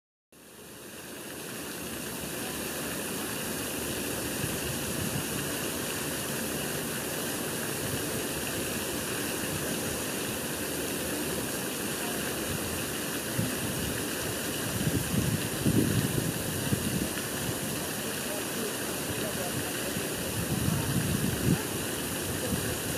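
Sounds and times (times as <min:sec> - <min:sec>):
rushing hissing outdoor noise: 0:00.4 - 0:22.9
wind buffeting microphone: 0:04.4 - 0:05.4, 0:12.5 - 0:17.7, 0:19.2 - 0:22.9.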